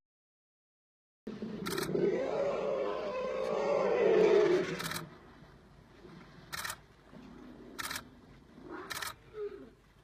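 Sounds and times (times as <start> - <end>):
faint low elephant sounds: 1.3 - 10.0
camera shutter clicks: 1.6 - 1.9, 4.8 - 5.0, 6.5 - 6.8, 7.8 - 8.0, 8.9 - 9.2.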